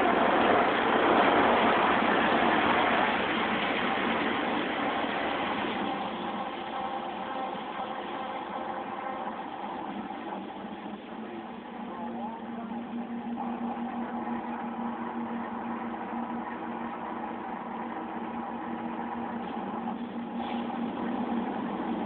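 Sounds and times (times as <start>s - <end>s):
car wash machinery running: 0.0s - 22.0s.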